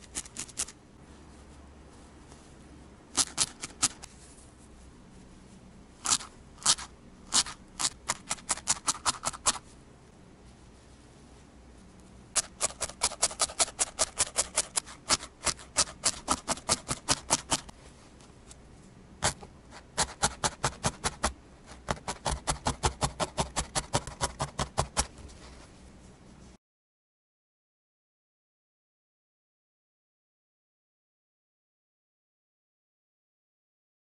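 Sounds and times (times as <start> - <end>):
felting needle stabbing wool: 3.1 - 4.1, 6.0 - 9.6, 12.3 - 17.7, 19.2 - 25.2.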